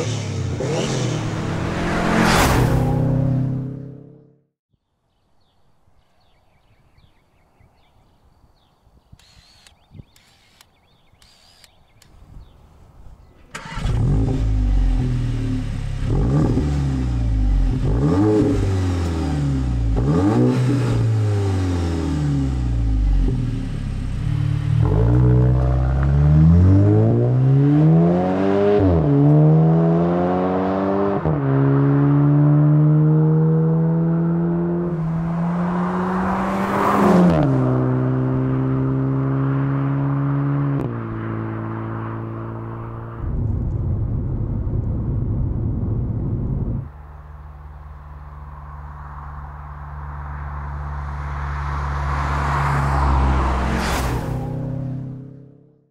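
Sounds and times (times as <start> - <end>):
car engine accelerating with gear shifts: 0.0 - 4.4, 13.5 - 43.8.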